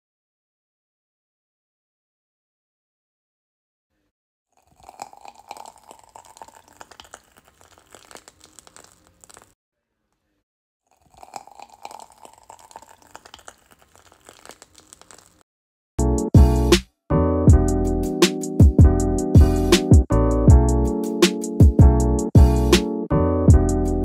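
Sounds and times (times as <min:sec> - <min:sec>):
plastic piping bag crinkling: 0:04.6 - 0:09.6, 0:11.0 - 0:15.4
soft crackling of cream piped: 0:04.6 - 0:09.6, 0:10.9 - 0:15.4.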